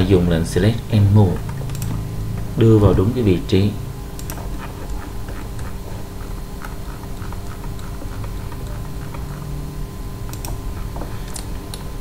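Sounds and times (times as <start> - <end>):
electrical hum: 0.0 - 12.0
low background rumble: 0.0 - 12.0
mouse and keyboard clicks: 4.2 - 9.4.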